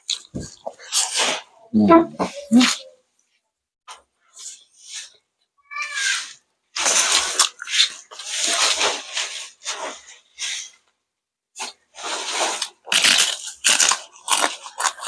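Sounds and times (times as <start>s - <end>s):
crispy chicken skin crunching: 12.5s - 15.0s.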